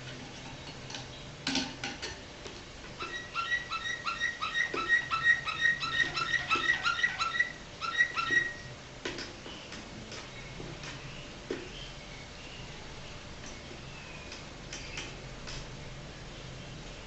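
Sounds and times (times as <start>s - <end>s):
canary singing whistled notes: 3.0s - 8.7s.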